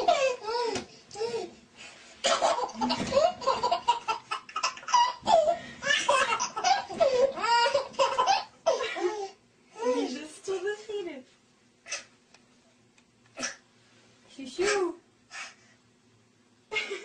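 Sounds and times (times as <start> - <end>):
baby laughing and squealing: 2.3 - 9.3.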